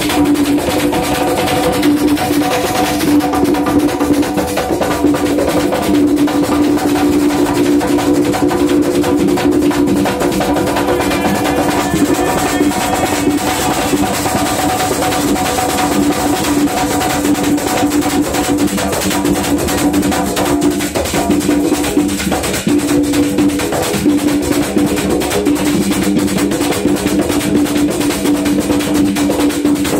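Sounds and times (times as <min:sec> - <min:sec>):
hand drum slapped: 0:00.0 - 0:29.9
maracas: 0:00.0 - 0:29.9
held note: 0:09.8 - 0:16.2
metal guiro scraping: 0:10.2 - 0:15.5.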